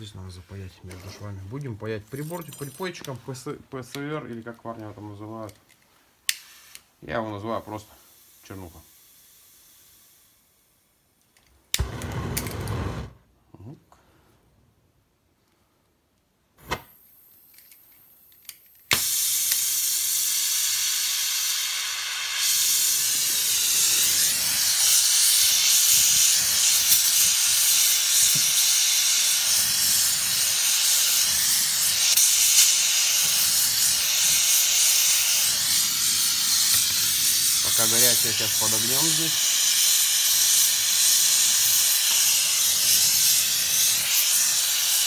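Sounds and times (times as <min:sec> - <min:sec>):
gas torch hissing: 0:06.2 - 0:10.8, 0:11.7 - 0:13.2, 0:18.9 - 0:45.0.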